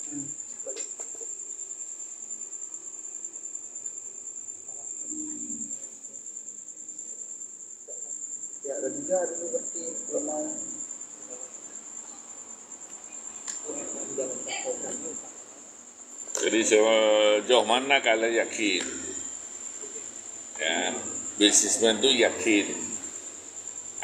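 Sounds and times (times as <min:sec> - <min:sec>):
crickets trilling: 0:00.0 - 0:24.0
murmured voices: 0:13.0 - 0:15.7, 0:16.3 - 0:23.2.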